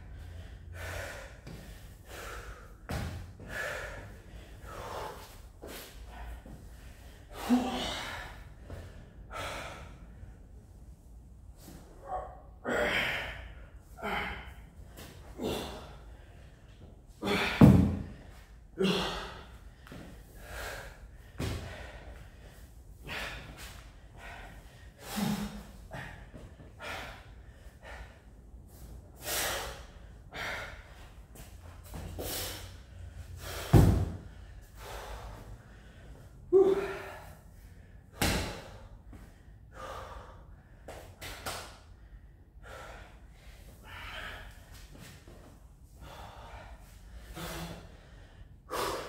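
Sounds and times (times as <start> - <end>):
person breathing hard: 0.0 - 49.0
heavy thud: 17.5 - 18.2, 33.7 - 34.2.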